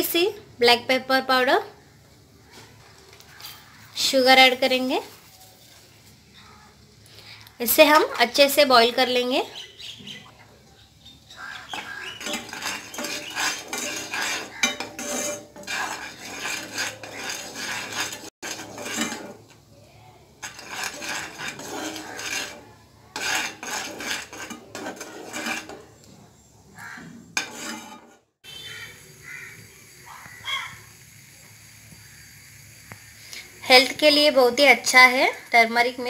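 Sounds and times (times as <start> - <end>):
metal spoon stirring in saucepan: 11.3 - 19.7, 20.3 - 29.4.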